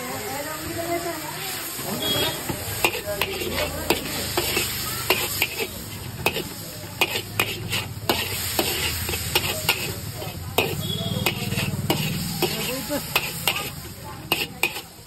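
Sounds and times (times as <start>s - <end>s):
food sizzling: 0.0s - 15.0s
metal spatula scraping wok: 0.0s - 15.0s.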